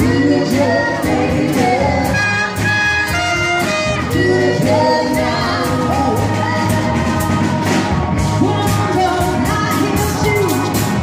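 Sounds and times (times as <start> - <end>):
drums with cymbal beat: 0.0 - 11.0
horns playing notes: 2.0 - 5.6.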